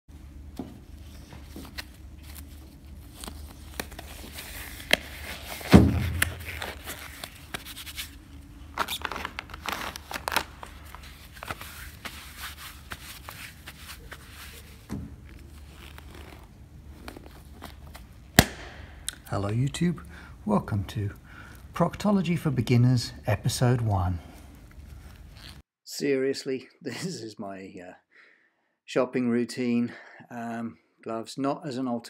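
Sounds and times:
steady low hum: 0.1 - 25.6
plastic and gloves crinkling: 0.9 - 18.7
loud thump: 5.7 - 6.4.

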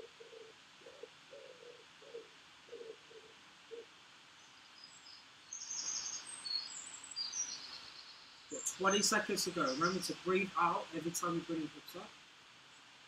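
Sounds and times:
pigeon cooing: 0.0 - 3.9
songbird chirping: 0.0 - 12.1.

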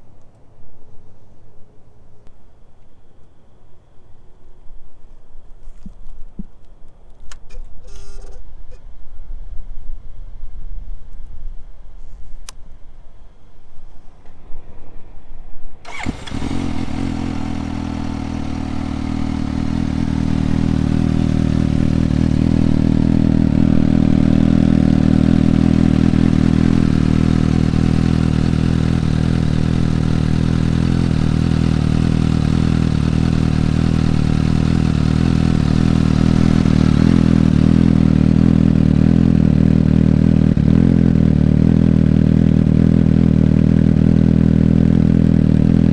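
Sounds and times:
motorcycle engine idling: 15.9 - 45.9.

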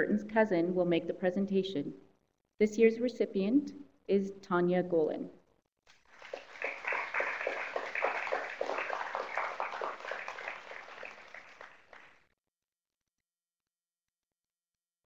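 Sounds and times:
audience applauding: 5.9 - 12.2.

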